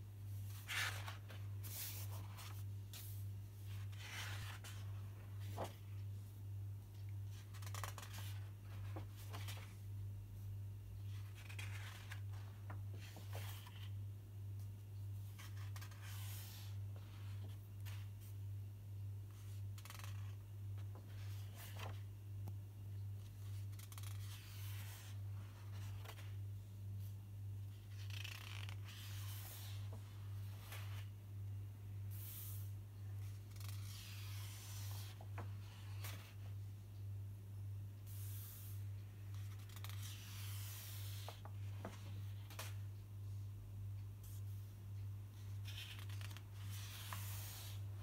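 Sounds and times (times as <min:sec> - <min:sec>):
paper rustling: 0:00.4 - 0:06.0, 0:07.3 - 0:09.8, 0:15.3 - 0:18.1, 0:19.5 - 0:22.1, 0:45.4 - 0:47.8
sketchbook pages turning: 0:00.4 - 0:06.0, 0:07.3 - 0:09.8, 0:11.1 - 0:14.0, 0:15.2 - 0:18.3, 0:19.3 - 0:22.1, 0:23.2 - 0:26.4, 0:27.8 - 0:31.1, 0:33.2 - 0:36.5, 0:39.3 - 0:42.8, 0:45.4 - 0:47.8.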